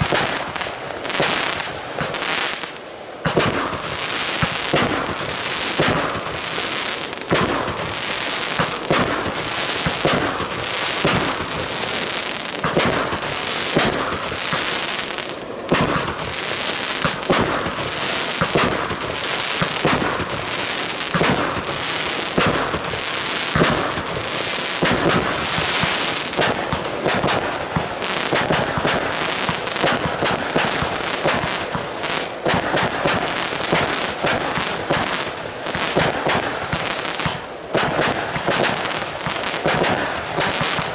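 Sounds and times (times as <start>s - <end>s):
continuous hiss: 0.0s - 40.9s
fireworks bursting: 0.0s - 40.9s
fireworks launch thumps: 12.6s - 14.7s.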